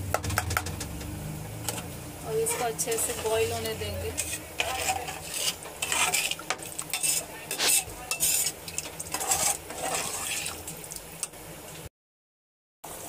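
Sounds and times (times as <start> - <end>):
metal ladle scraping pot: 1.6 - 10.8
liquid sloshing: 1.6 - 11.2.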